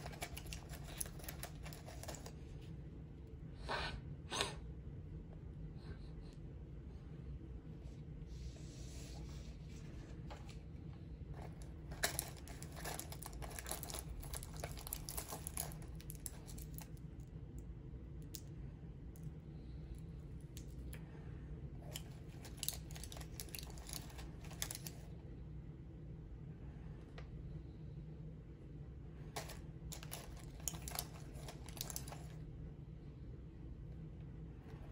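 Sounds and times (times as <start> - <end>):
rummaging through items in a pouch: 0.0 - 2.4, 11.4 - 17.0, 21.8 - 25.1, 29.3 - 32.4
steady low hum: 0.0 - 34.9.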